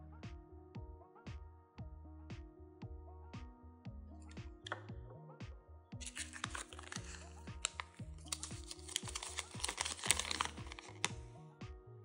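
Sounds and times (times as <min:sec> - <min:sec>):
background music with bass line: 0:00.0 - 0:12.0
paper leaflet rustling and crackling: 0:06.0 - 0:11.2.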